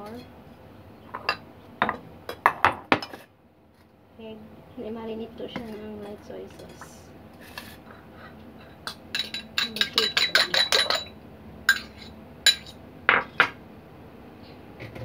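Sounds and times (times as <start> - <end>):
fork clinking against ceramic bowl: 8.8 - 11.1, 11.7 - 12.8.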